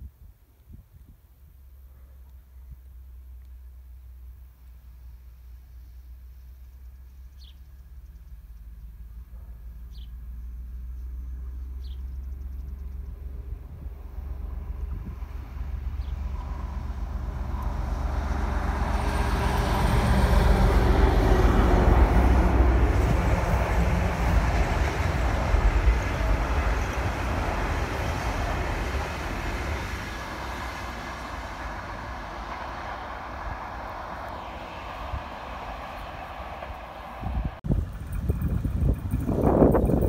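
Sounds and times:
diesel locomotive engine rumble: 0:01.4 - 0:40.0
train wheel noise: 0:13.9 - 0:40.0.

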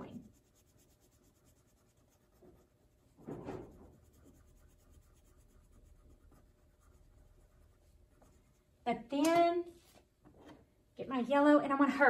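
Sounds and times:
crayon rubbing on paper: 0:00.0 - 0:08.6.

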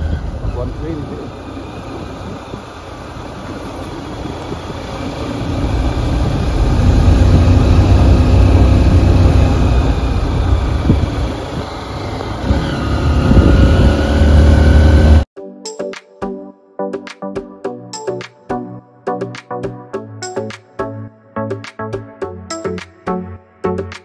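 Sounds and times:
vehicle engine and road rumble: 0:00.0 - 0:15.3
music: 0:15.4 - 0:24.0.

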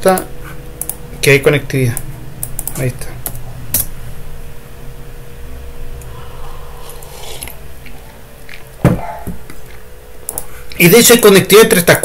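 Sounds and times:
faint steady hum: 0:00.0 - 0:12.0
soft clicks: 0:00.8 - 0:01.0.

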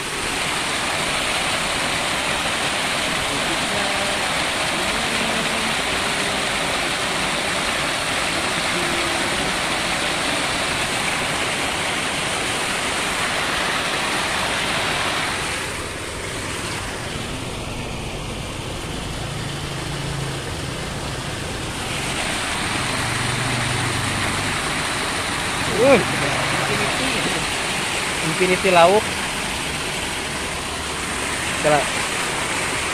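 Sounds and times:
water pouring over spillway: 0:00.0 - 0:32.9.

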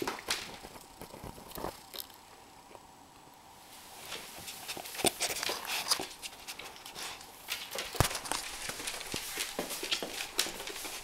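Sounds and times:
puppy claws clicking on hardwood floor: 0:04.8 - 0:11.0.

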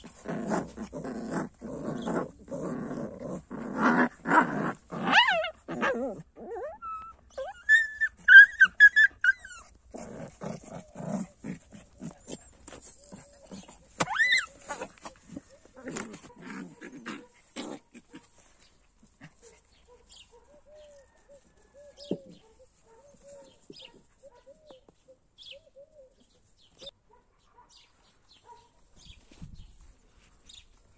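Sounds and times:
puppies whimpering and yipping: 0:05.1 - 0:09.8, 0:12.1 - 0:15.8.

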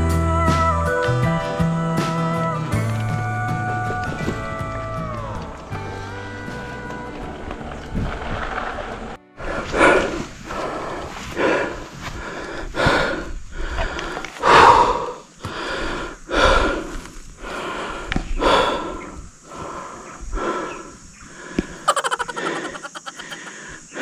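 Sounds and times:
person breathing heavily: 0:09.4 - 0:24.0.

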